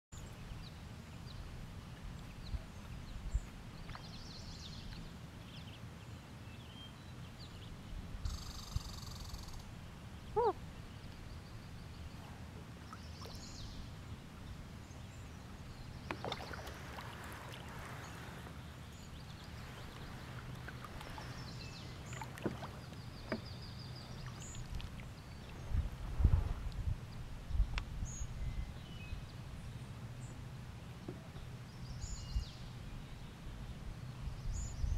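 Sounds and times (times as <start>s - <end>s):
light knocks and taps from boat: 2.0s - 5.1s, 15.8s - 28.9s, 29.9s - 32.3s.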